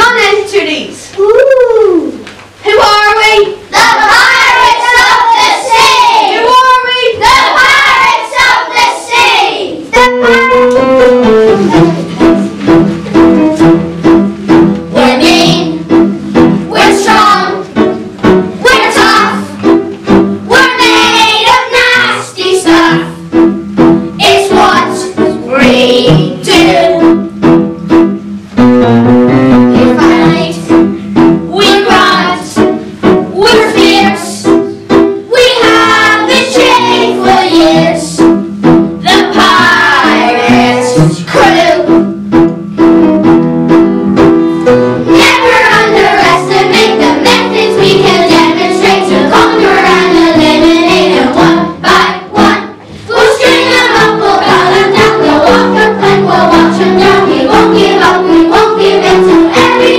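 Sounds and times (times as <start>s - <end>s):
piano: 1.1s - 59.9s
children singing: 3.7s - 10.8s, 16.7s - 17.9s, 18.6s - 19.6s, 20.5s - 23.1s, 24.2s - 27.2s, 29.8s - 30.6s, 31.5s - 32.6s, 33.4s - 34.5s, 35.3s - 38.2s, 39.0s - 41.9s, 45.1s - 59.9s.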